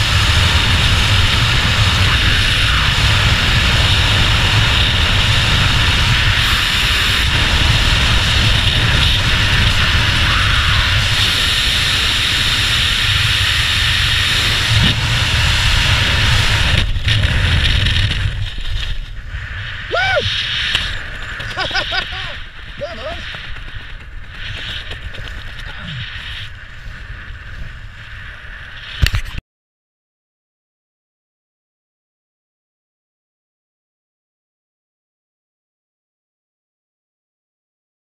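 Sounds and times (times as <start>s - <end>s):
wind roaring over microphone: 0.0s - 29.4s.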